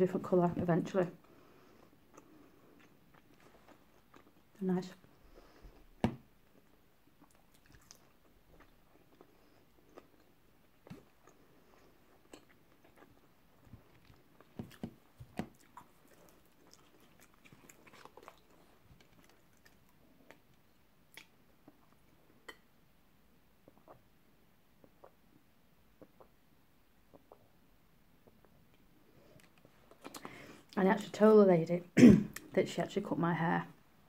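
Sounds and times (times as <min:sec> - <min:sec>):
chewing and crunching food: 0:01.2 - 0:22.2, 0:28.2 - 0:30.8.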